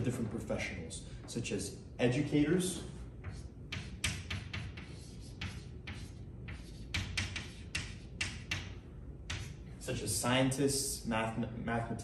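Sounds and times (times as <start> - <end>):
chalk scratching on blackboard: 3.2 - 8.7, 9.3 - 9.6.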